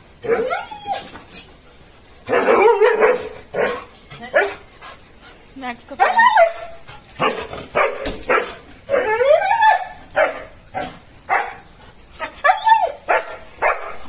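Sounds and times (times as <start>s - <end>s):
dog whining yelps: 0.2s - 1.4s, 2.3s - 4.6s, 6.0s - 14.0s
dog barking: 2.3s - 4.6s, 7.2s - 8.6s, 10.2s - 11.7s, 13.1s - 14.0s.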